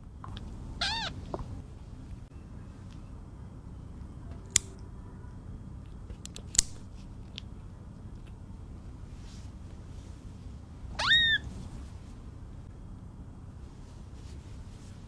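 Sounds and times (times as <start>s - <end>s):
nail clippers clicking: 4.5s - 4.8s, 6.2s - 6.8s.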